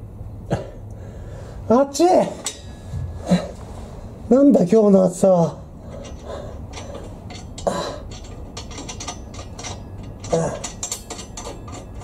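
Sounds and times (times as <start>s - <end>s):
metallic clicking of exhaust pipe: 2.4s - 2.9s, 5.8s - 12.0s.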